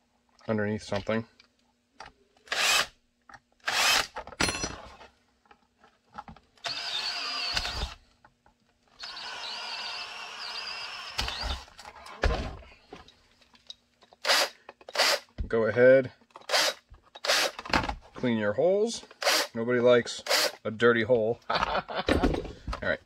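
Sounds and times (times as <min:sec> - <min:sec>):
cordless drill whining: 0:02.5 - 0:02.9, 0:03.6 - 0:04.1, 0:06.6 - 0:08.0, 0:09.0 - 0:11.8, 0:14.2 - 0:15.3, 0:16.5 - 0:17.6.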